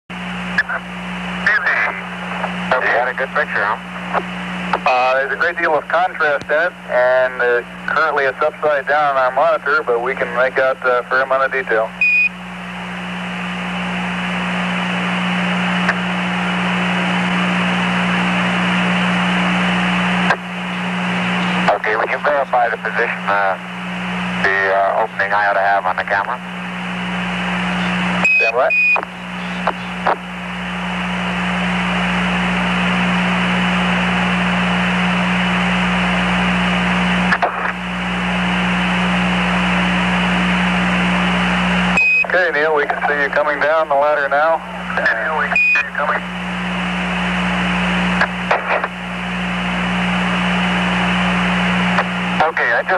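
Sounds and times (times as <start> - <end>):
radio static hiss: 0.1 - 52.9
radio click: 0.6 - 2.6, 3.4 - 4.9, 6.2 - 6.6, 15.7 - 16.1, 20.2 - 20.5, 21.3 - 22.1, 27.8 - 30.3, 36.6 - 37.8, 44.9 - 46.2, 48.1 - 49.0, 51.8 - 52.9.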